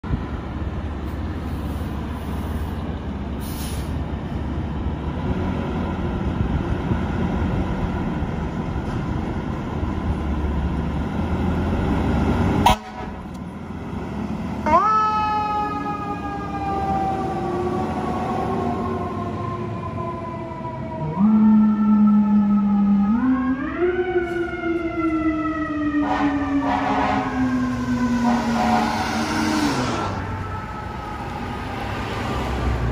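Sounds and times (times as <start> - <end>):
fire engine diesel rumbling: 0.0 - 32.9
air horn chord: 26.0 - 27.4, 28.2 - 29.7.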